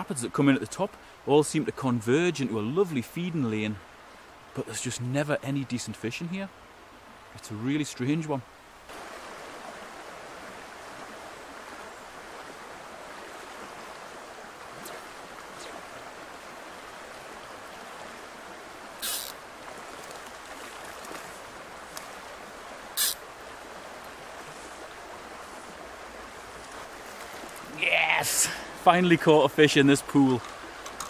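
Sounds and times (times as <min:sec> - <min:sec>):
river rushing over riffles: 0:08.5 - 0:31.0
fly line swishing off water: 0:19.0 - 0:22.2, 0:22.9 - 0:23.2.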